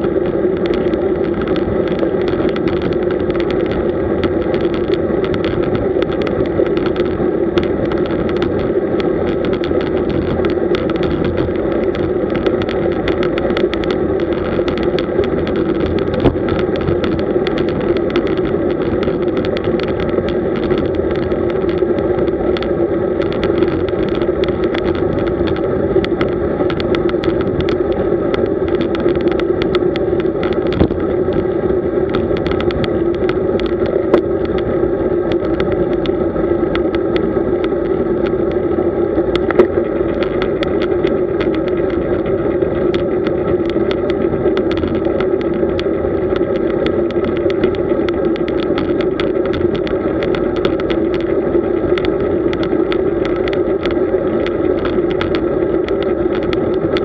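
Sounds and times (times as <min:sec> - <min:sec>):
bicycle road hum: 0:00.0 - 0:57.0
small clicks and rattles: 0:00.0 - 0:57.0.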